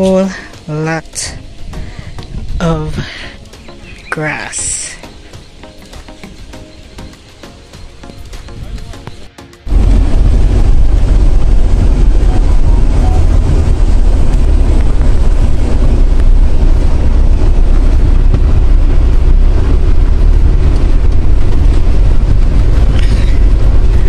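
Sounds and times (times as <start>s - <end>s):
car engine and road noise: 0.0s - 24.0s
rain on car roof: 9.6s - 24.0s.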